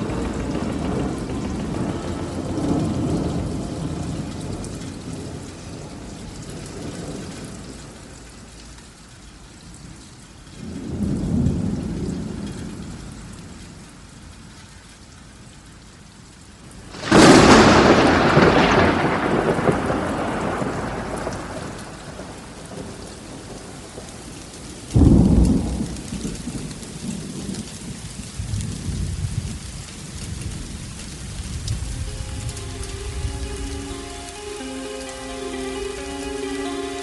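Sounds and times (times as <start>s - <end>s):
thunder claps: 0.0s - 8.0s, 16.9s - 24.3s, 24.9s - 37.0s
rain falling steadily: 0.0s - 37.0s.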